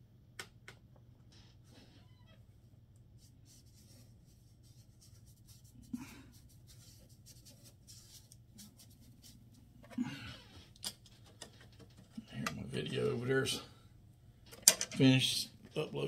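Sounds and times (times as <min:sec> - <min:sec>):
paintbrush scratching on paper: 0:03.2 - 0:09.5.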